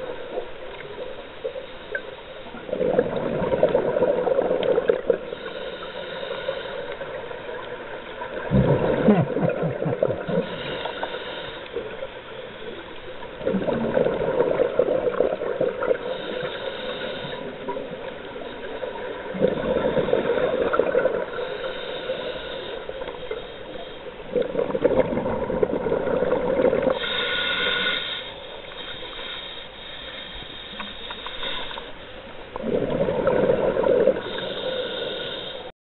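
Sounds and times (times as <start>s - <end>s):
bubbly underwater exhalations: 2.7s - 5.2s, 8.3s - 10.8s, 13.4s - 16.0s, 19.3s - 21.4s, 24.3s - 27.0s, 32.6s - 34.4s
regulator hissing inhalation: 5.2s - 7.4s, 10.3s - 12.8s, 16.0s - 17.8s, 21.3s - 24.1s, 26.9s - 31.9s, 34.1s - 35.7s.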